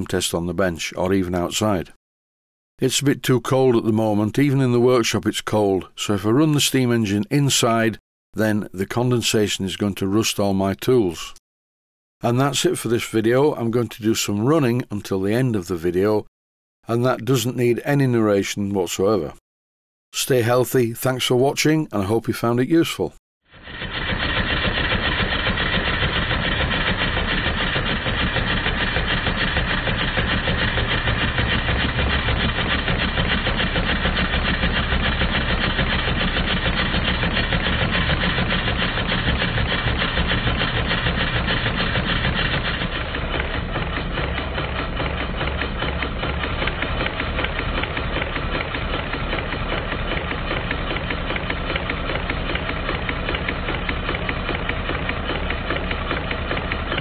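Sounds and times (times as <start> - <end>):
steam engine exhaust patter: 23.6 - 57.0
valve gear clatter: 23.6 - 57.0.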